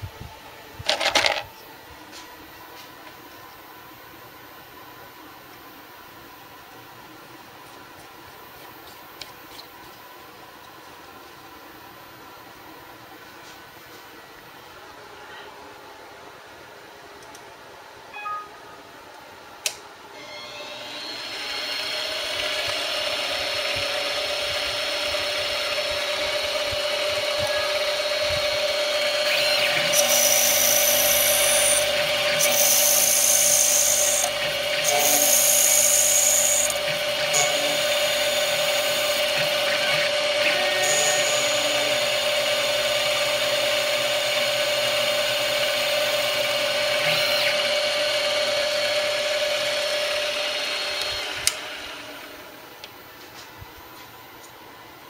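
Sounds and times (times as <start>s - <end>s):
lathe spindle whine: 20.2s - 52.6s
high-pitched cutting noise: 29.2s - 42.1s.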